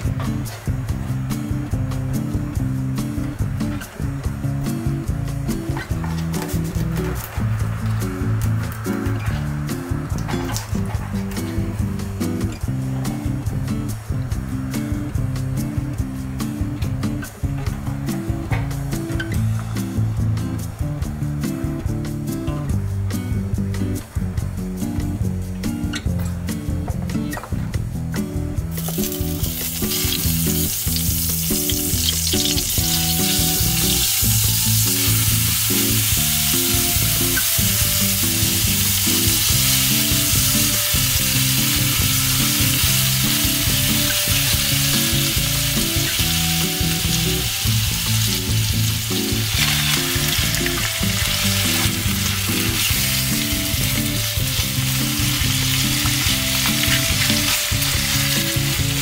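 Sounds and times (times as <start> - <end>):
garlic sizzling in oil: 28.7 - 59.0.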